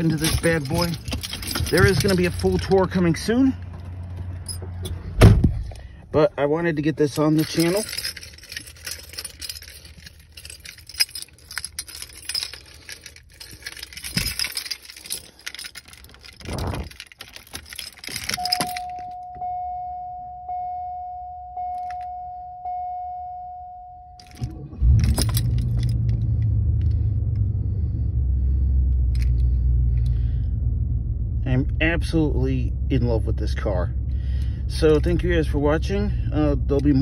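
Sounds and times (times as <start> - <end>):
keys jangling: 0.0 - 5.9, 7.1 - 19.4, 24.2 - 27.4, 29.0 - 30.2
car engine starting and idling: 0.0 - 23.1, 24.0 - 37.0
car warning chime: 18.4 - 24.8.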